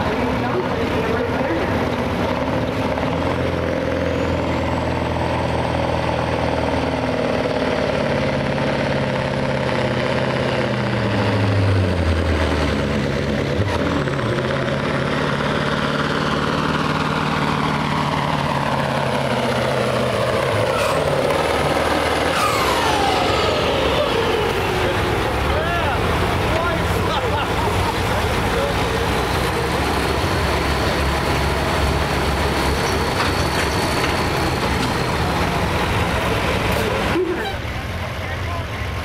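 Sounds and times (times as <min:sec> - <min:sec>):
diesel truck engine at full throttle: 0:00.0 - 0:39.0
high turbo whine: 0:10.4 - 0:39.0.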